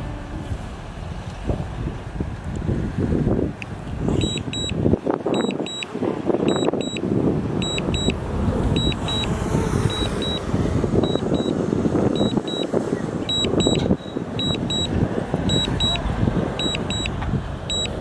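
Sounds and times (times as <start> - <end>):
reversing alarm double beeps: 4.2 - 5.9, 6.5 - 7.0, 7.6 - 8.2, 8.8 - 9.3, 9.9 - 10.4, 11.0 - 12.7, 13.3 - 16.0, 16.6 - 18.0
diesel engine running: 6.5 - 18.0.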